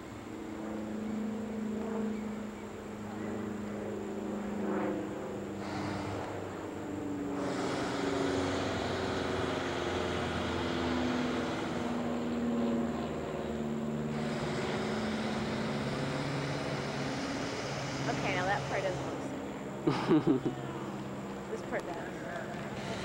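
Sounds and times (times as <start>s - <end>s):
aircraft engine droning: 0.0s - 23.0s.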